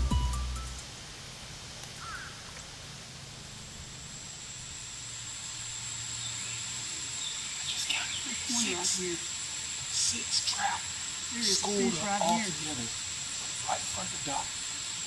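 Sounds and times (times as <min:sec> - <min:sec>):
outdoor hiss: 0:00.0 - 0:15.0
high-pitched insect buzz: 0:03.5 - 0:15.0
faint chirp: 0:06.1 - 0:09.2.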